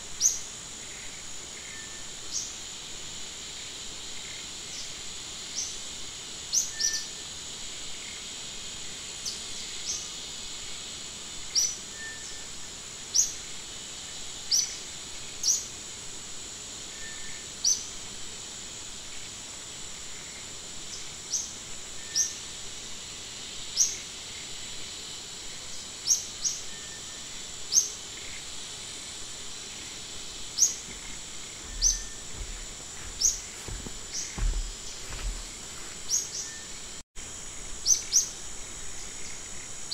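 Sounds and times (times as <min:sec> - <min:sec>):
high insect buzz: 0:00.0 - 0:39.9
bird chirping: 0:30.6 - 0:35.4.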